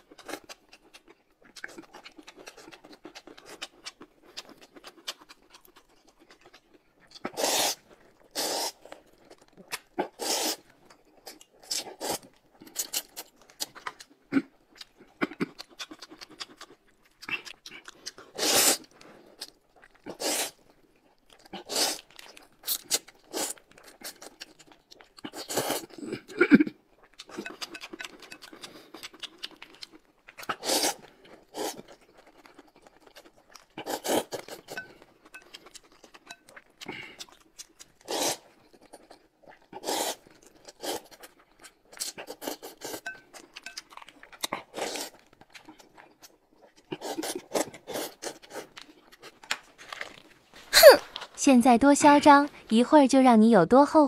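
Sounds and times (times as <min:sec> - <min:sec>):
crunching and chewing: 0:00.0 - 0:51.4
mouth noises: 0:50.7 - 0:52.8.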